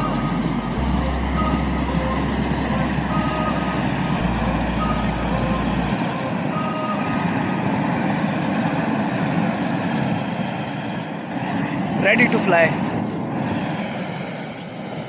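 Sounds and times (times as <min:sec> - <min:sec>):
propane burner firing: 0:05.7 - 0:15.0.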